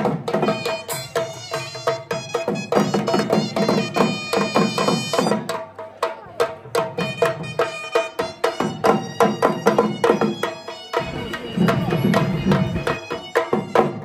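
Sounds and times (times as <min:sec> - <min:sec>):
dhol drum beaten with sticks: 0:00.0 - 0:14.0
piping melody: 0:07.0 - 0:14.0.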